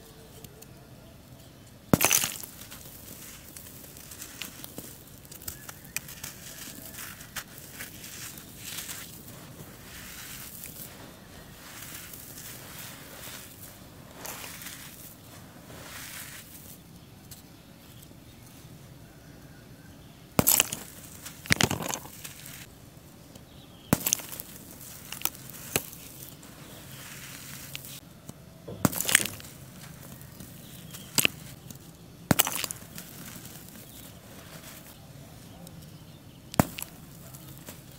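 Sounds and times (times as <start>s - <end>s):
charcoal balls crunching: 1.4s - 18.4s, 20.0s - 37.9s
hands rustling charcoal powder: 1.4s - 18.7s, 20.0s - 37.9s.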